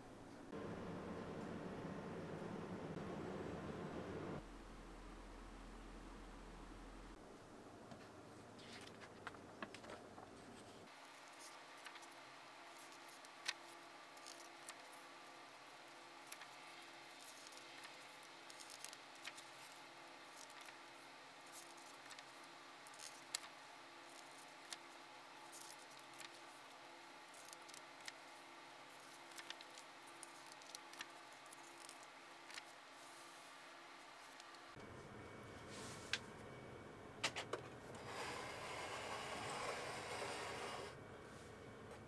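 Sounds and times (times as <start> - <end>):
faint steady hum: 0.0 - 42.0.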